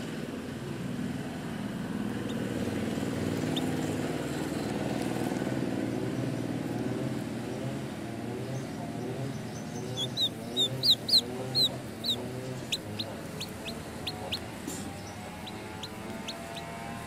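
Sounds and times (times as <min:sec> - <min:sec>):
chick peeping: 0:03.2 - 0:04.0, 0:09.0 - 0:17.0.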